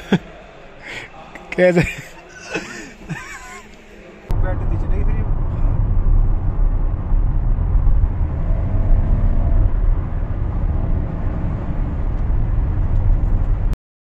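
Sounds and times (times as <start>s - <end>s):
car engine and tyre rumble: 4.3s - 13.8s.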